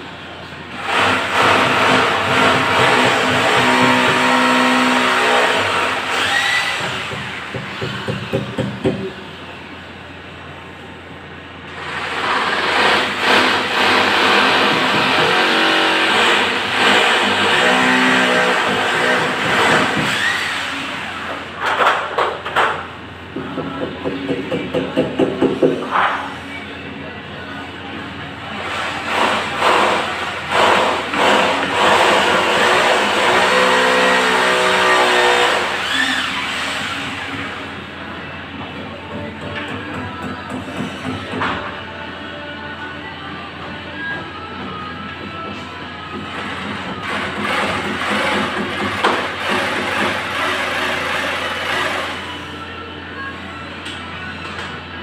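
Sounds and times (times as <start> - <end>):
electric drill drilling: 0.8 - 7.3, 11.9 - 21.0, 30.5 - 37.3
electric drill drilling into wall: 29.2 - 37.0.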